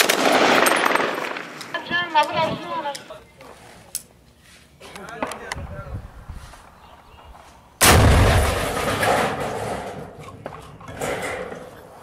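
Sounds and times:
loud explosion blast: 7.8 - 9.1.

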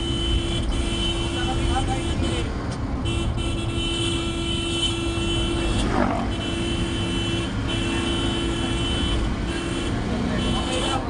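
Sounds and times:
motor vehicle running: 4.2 - 11.0.

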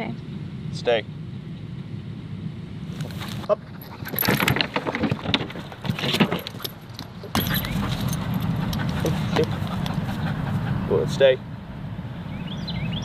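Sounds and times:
metal gear jingling: 3.7 - 9.1.

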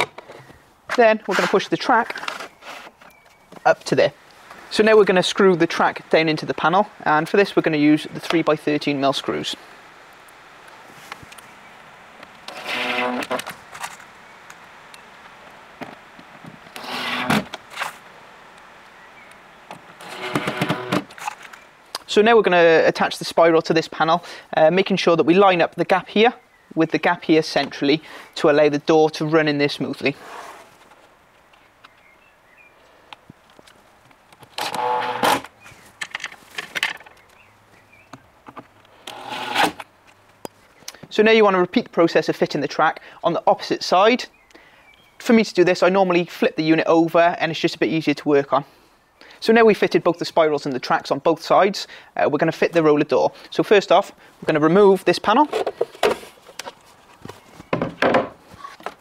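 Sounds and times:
cordless drill driving screws: 12.5 - 13.5, 16.7 - 17.9, 20.0 - 21.3, 34.6 - 35.5, 39.0 - 39.8
clicks and knocks of handling parts: 33.1 - 37.4, 55.3 - 59.0.

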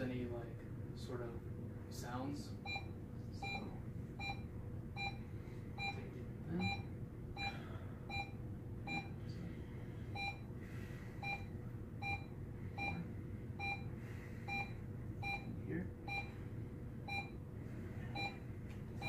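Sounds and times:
pulse oximeter beeping: 2.6 - 9.2, 10.1 - 10.6, 11.2 - 17.5, 18.2 - 19.0.

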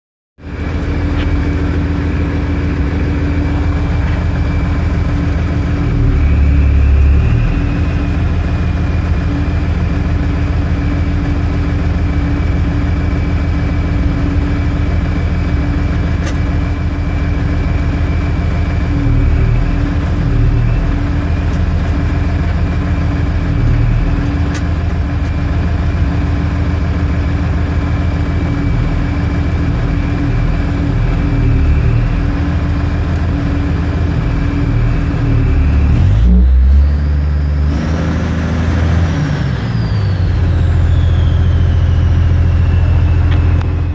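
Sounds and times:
tractor diesel engine running: 0.4 - 43.9.

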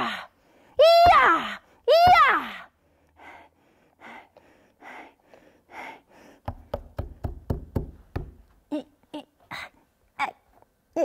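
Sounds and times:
soft breathy puffs: 2.8 - 6.6.

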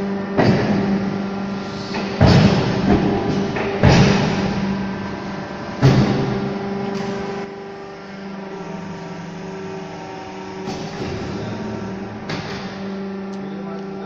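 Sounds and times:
motor humming: 0.0 - 14.0
brick making machine thuds: 0.2 - 7.4, 10.4 - 13.0.

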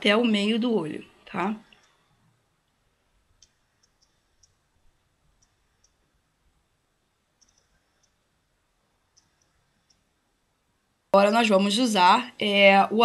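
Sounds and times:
faint high clicks: 3.4 - 4.6, 7.4 - 8.2.

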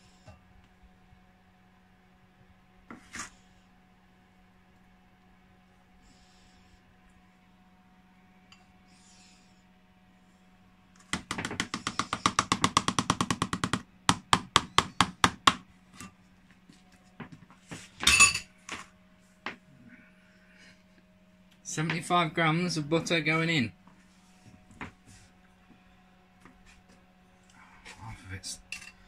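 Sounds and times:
utensil knocking against a bowl: 11.1 - 15.1.

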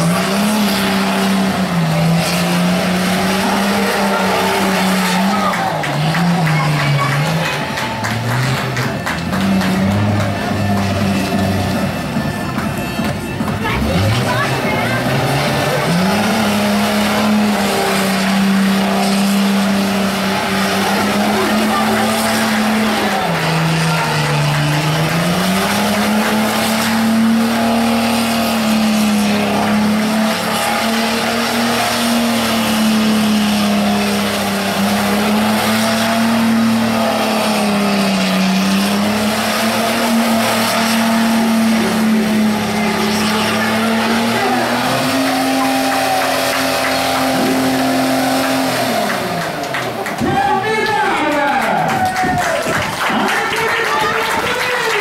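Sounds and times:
car engine revving high: 0.0 - 55.0
tyres skidding: 0.0 - 55.0.

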